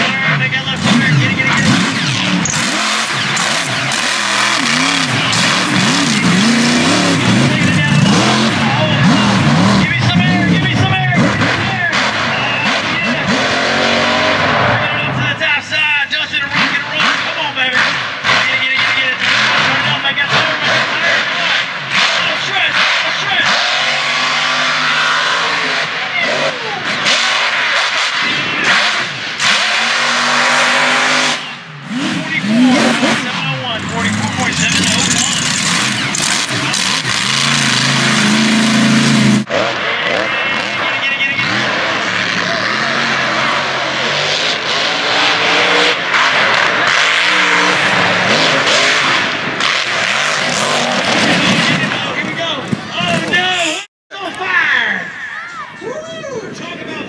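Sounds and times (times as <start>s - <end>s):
buggy engine at high revs: 0.0s - 15.6s, 16.3s - 53.9s
loud rushing noise: 0.8s - 15.3s, 22.8s - 53.5s.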